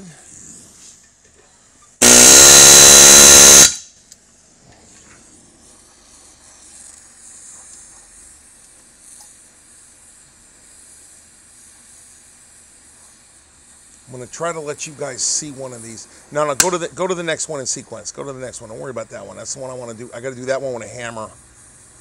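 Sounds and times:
loud buzzing tone: 2.0s - 3.8s
torch flame hissing: 2.0s - 3.8s, 5.2s - 22.0s.

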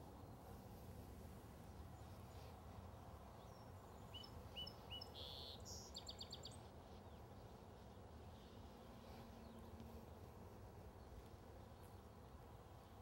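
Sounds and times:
faint outdoor background noise: 0.0s - 13.0s
small bird chirping: 1.7s - 10.0s.

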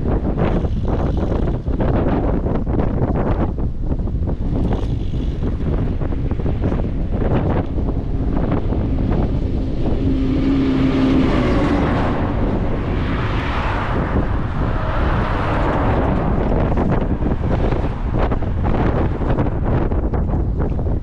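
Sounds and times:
wind rumble on microphone: 0.0s - 21.0s
vehicle passing: 5.8s - 20.6s.

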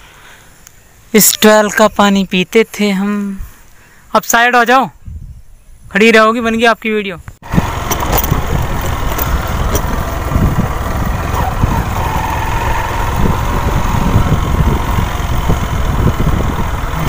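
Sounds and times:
motorcycle engine rumbling: 7.4s - 17.0s
knocks from rough ground: 7.7s - 10.7s.

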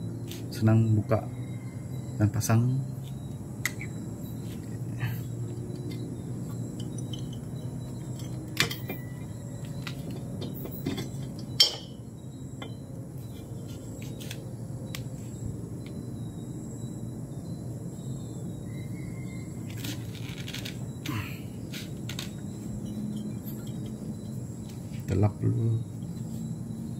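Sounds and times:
metallic clinks and knocks: 5.7s - 12.0s, 22.1s - 24.4s.

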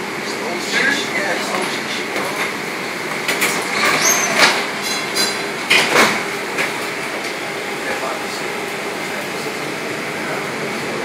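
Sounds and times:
streetcar wheels rumbling on rail: 0.0s - 11.0s
wheel squeals: 3.6s - 5.0s.

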